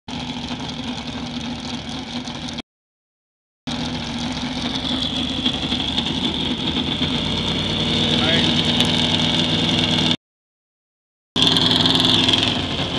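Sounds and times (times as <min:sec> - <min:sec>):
race car engine idling: 0:00.1 - 0:02.6, 0:03.7 - 0:08.8.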